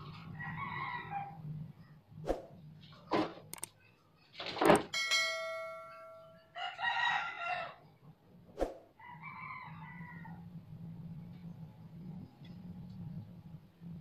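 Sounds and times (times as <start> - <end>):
rooster crowing: 0.1 - 1.5, 6.5 - 7.9, 9.0 - 10.5
sharp click: 3.5 - 3.7
bell-like chime: 4.9 - 6.6
faint low hum: 5.4 - 14.0.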